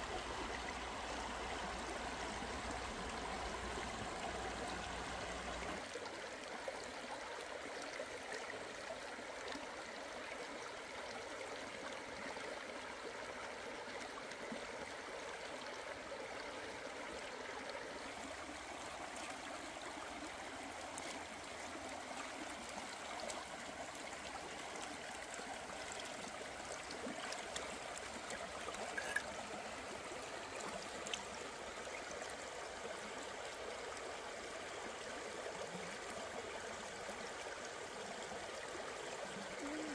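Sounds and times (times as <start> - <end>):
stream rushing: 0.0 - 5.9.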